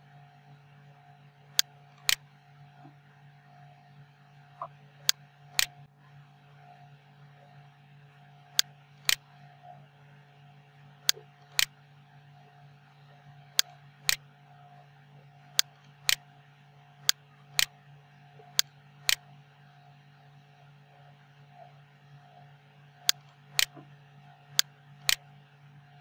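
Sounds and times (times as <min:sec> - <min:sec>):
low electrical hum: 0:00.0 - 0:26.0
computer mouse clicks: 0:23.1 - 0:23.8.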